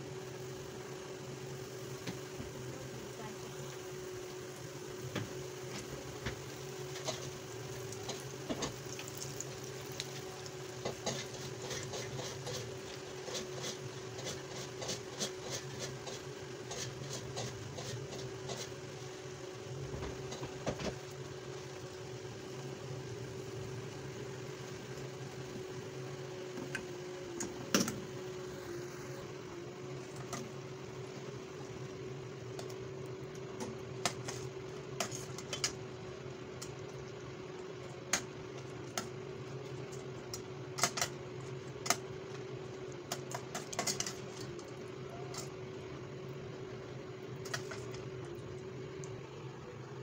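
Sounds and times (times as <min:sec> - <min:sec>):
batter sizzling in hot oil: 0:00.0 - 0:27.0
steady hum: 0:00.0 - 0:50.0.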